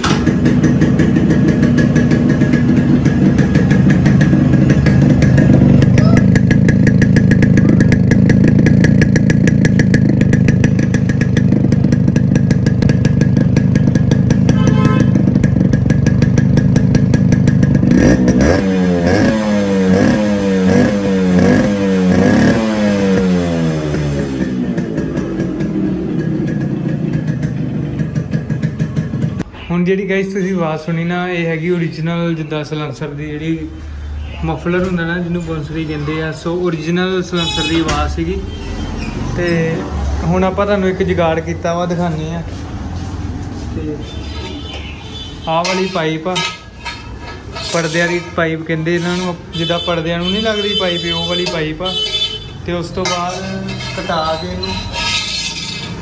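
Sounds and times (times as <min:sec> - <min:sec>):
two-stroke motorcycle engine revving: 0:00.0 - 0:29.4, 0:48.8 - 0:56.0.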